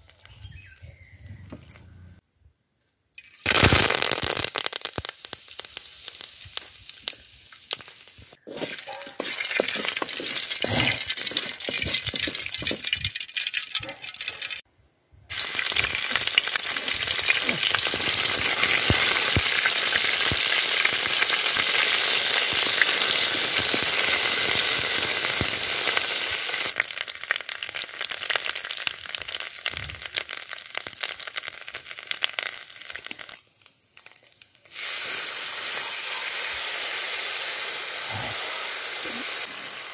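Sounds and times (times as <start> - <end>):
leaves sizzling in hot oil: 3.2 - 14.3, 15.3 - 39.9
wooden spatula scraping pan: 8.4 - 12.9.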